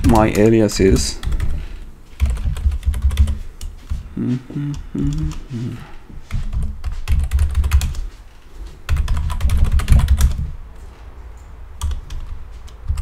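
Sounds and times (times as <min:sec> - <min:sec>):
computer keyboard typing: 0:00.0 - 0:04.0, 0:06.3 - 0:08.1, 0:08.9 - 0:10.5, 0:11.8 - 0:13.0.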